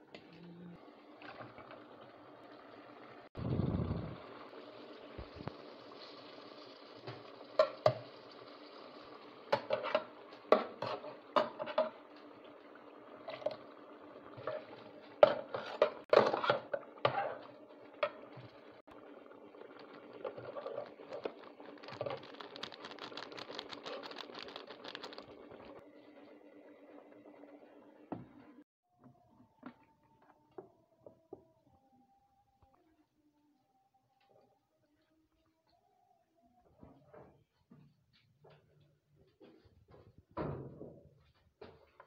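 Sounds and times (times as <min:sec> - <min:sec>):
spatula scraping metal pot: 0:14.4 - 0:17.5, 0:20.2 - 0:22.3
sauce bubbling: 0:17.0 - 0:25.8.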